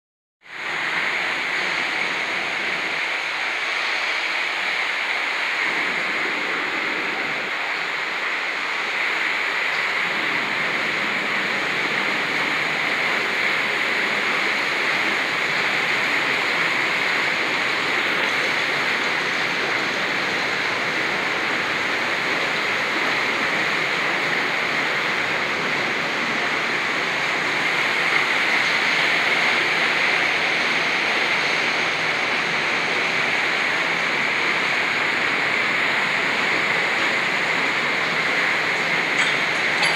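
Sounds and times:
water rushing through watermill: 0.4 - 39.9.

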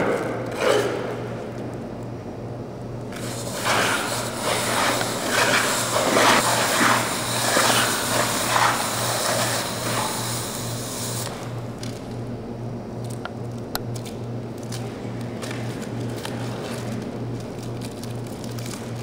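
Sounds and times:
pads scraping across floor: 3.2 - 10.1.

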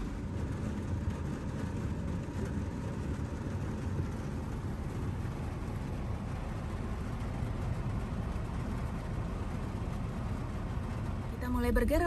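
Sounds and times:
rain on car roof: 0.0 - 12.0.

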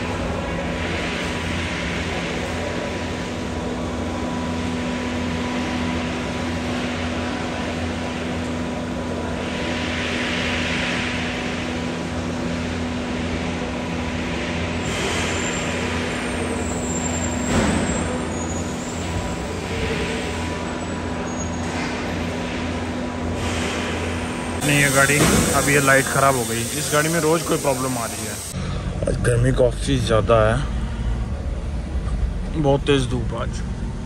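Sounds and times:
vehicle engine hum and rumble: 28.4 - 34.0.

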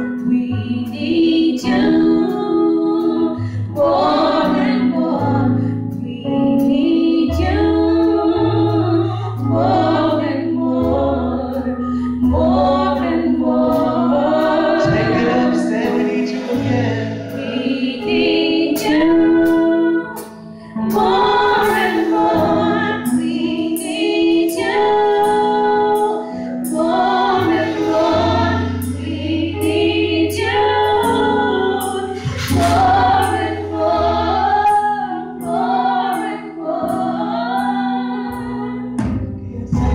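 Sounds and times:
women singing gospel song: 0.0 - 39.9
held bass notes: 10.9 - 19.5.

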